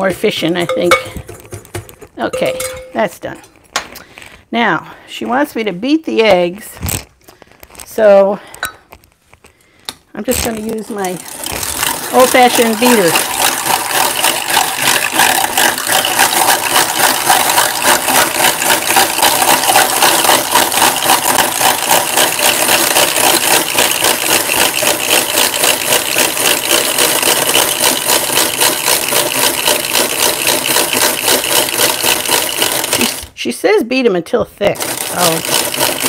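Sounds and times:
egg beater rattling and whirring: 0.0s - 3.0s, 10.2s - 33.4s, 34.6s - 36.0s.

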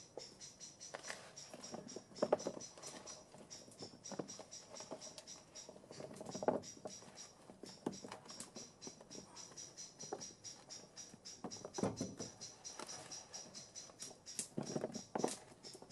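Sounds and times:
rapid high chirping: 0.0s - 15.9s.

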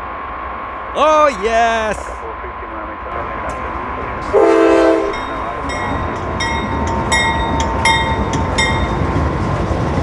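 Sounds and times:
diesel locomotive rumble: 0.0s - 10.0s
locomotive horn chord: 4.2s - 5.3s
bell ringing: 5.1s - 9.1s.

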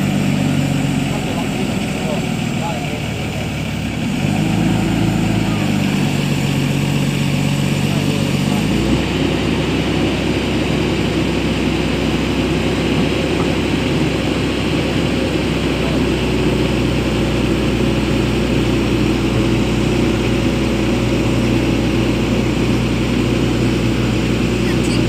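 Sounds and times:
excavator diesel engine droning: 0.0s - 25.0s.

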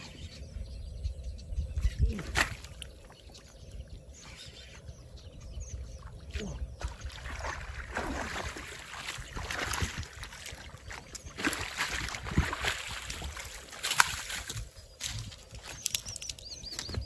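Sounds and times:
water sloshing and splashing: 2.0s - 3.6s, 5.8s - 17.0s.

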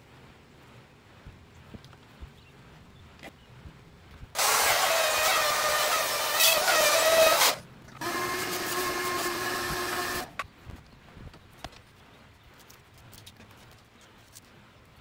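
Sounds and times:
router cutting plywood: 4.4s - 10.4s.

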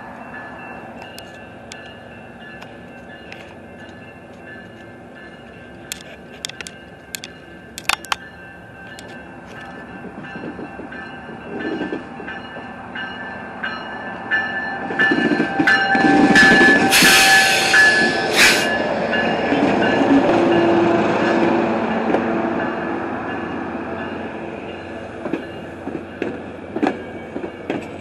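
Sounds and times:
crossing bell dinging: 0.0s - 28.0s
train wheels rolling: 0.0s - 28.0s
locomotive horn blast: 15.1s - 19.0s.

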